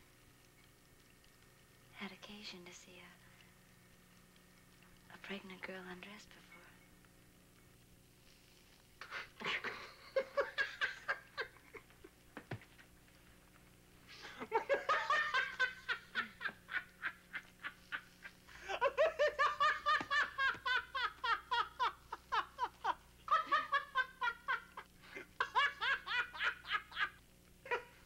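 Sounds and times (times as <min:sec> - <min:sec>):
man laughing heartily: 0:09.0 - 0:12.1, 0:14.2 - 0:28.0.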